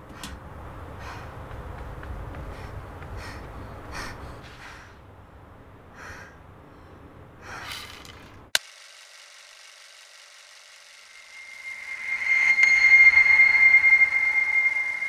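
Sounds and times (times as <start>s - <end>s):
person breathing heavily: 0.1s - 1.5s, 2.4s - 5.1s, 5.9s - 8.1s.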